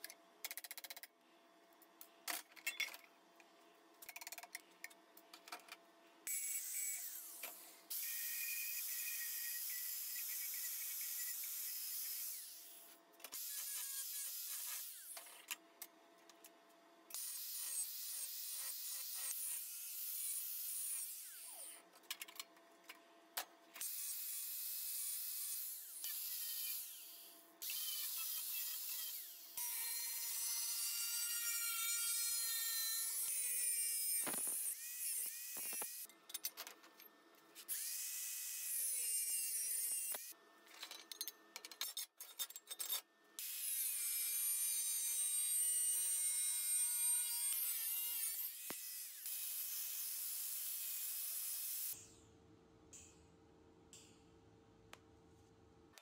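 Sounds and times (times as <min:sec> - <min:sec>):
angle grinder on metal: 0:23.8 - 0:36.1, 0:43.4 - 0:52.0.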